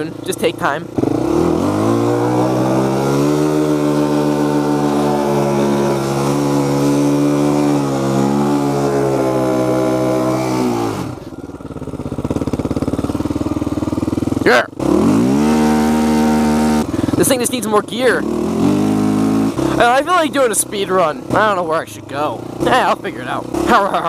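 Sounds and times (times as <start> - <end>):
atv engine revving: 0.0 - 24.0.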